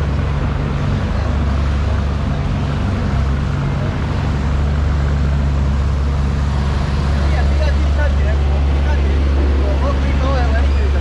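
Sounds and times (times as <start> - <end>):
low machinery drone: 0.0 - 11.0
rushing noise: 5.4 - 11.0.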